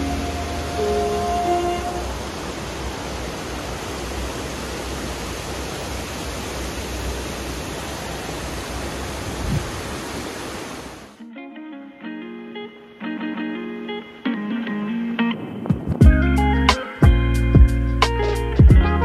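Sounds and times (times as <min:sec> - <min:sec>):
water rushing over weir: 0:00.0 - 0:11.2.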